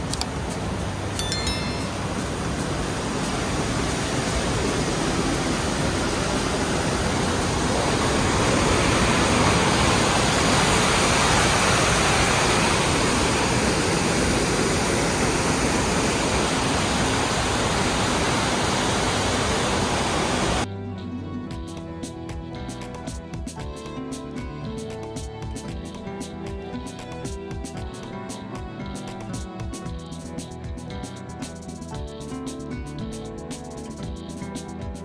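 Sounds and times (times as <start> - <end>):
water rushing through dam gates: 2.0 - 20.7.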